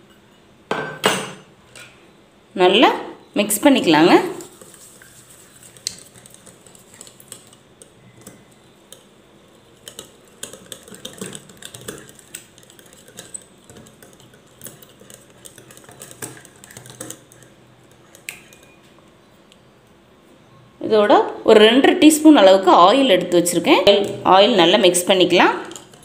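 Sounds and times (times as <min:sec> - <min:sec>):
whisk clicking against glass bowl: 0:09.8 - 0:18.8.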